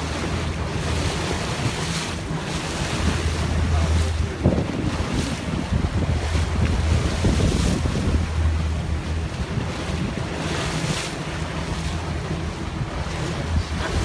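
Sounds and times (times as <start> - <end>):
boat motor droning: 0.0 - 14.0
water washing: 0.0 - 14.0
wind buffeting microphone: 0.0 - 14.0.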